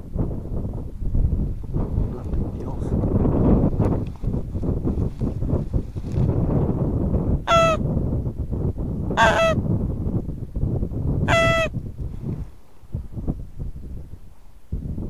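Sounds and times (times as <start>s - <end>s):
wind rumble on microphone: 0.0s - 15.0s
goose honks: 7.5s - 7.8s, 9.2s - 9.6s, 11.3s - 11.7s.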